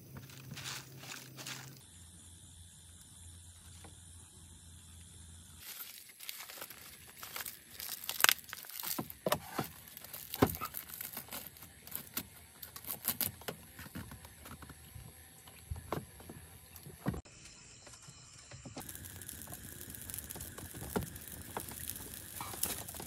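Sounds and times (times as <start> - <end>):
leaves crinkling and rustling: 0.1 - 1.8, 5.6 - 13.8, 18.8 - 23.0.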